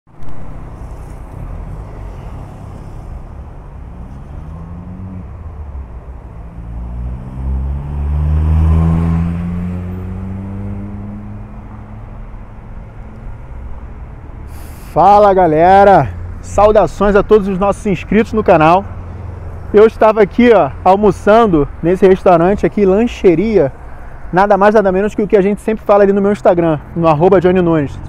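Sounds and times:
road traffic rumble: 0:00.1 - 0:28.0
engines accelerating past: 0:00.2 - 0:12.6.

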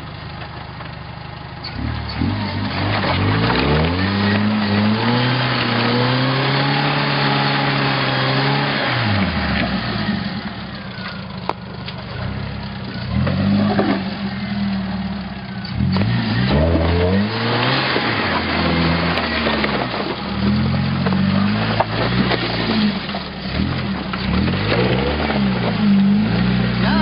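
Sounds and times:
engine revving in bursts: 0:01.8 - 0:10.2, 0:15.7 - 0:27.0.

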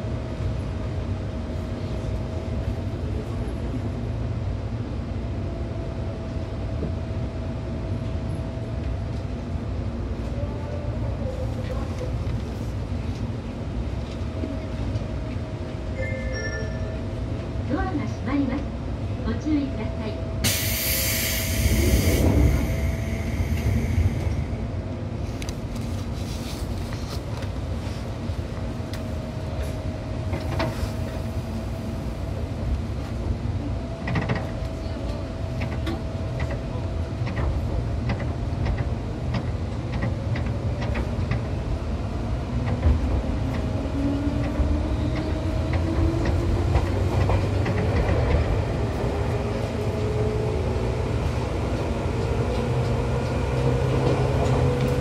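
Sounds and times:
train rumble and hum: 0:00.0 - 0:55.0
loud hiss: 0:20.4 - 0:24.2
rail-joint clicks: 0:34.0 - 0:34.8, 0:35.5 - 0:41.5, 0:44.4 - 0:48.5.

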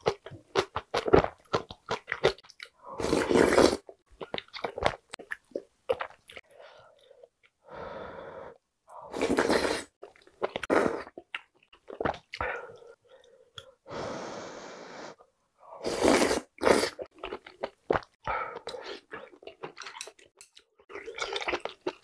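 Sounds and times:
slurping soup: 0:02.8 - 0:04.0, 0:09.1 - 0:11.2, 0:15.8 - 0:17.1
chewing: 0:17.1 - 0:22.0.

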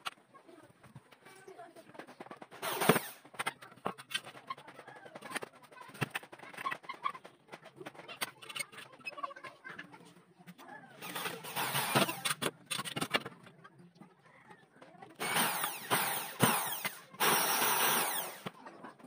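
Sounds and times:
clicks and rattles of handling: 0:00.0 - 0:09.8, 0:10.5 - 0:13.8
electric drill drilling aluminum: 0:02.6 - 0:03.2, 0:11.0 - 0:12.3, 0:15.2 - 0:18.5.

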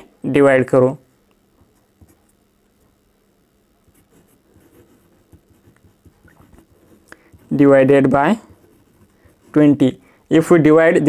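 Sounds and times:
pen scratching on paper: 0:03.9 - 0:09.8.

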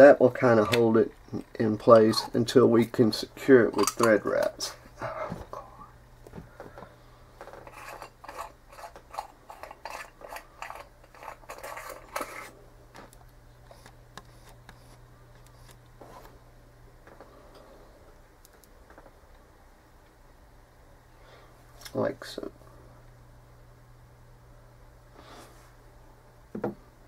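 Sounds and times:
faint low hum: 0:00.0 - 0:27.0
metal tools clicking and scraping: 0:03.7 - 0:04.2, 0:07.5 - 0:12.5.

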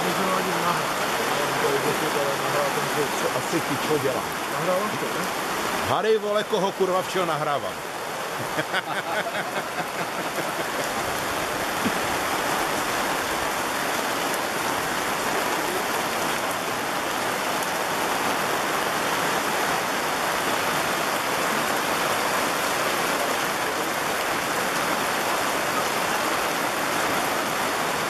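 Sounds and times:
heavy rain on cobblestones: 0:00.0 - 0:28.0
rain on fabric umbrella: 0:00.0 - 0:28.0.

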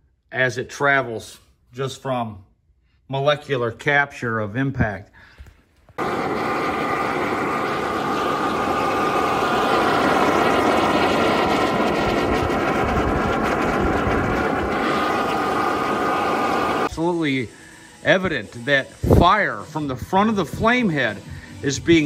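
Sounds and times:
steady whine: 0:05.9 - 0:22.0
burner flame roar: 0:06.0 - 0:17.1.

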